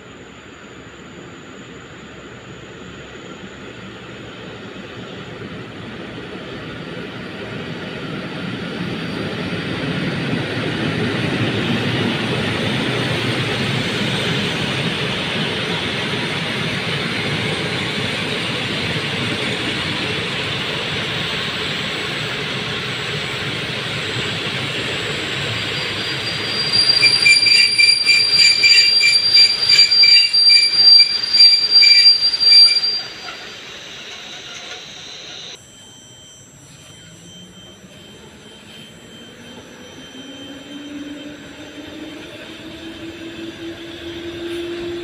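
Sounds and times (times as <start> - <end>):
train coaches rolling: 10.3 - 35.6
metallic wheel squeal: 23.9 - 41.7.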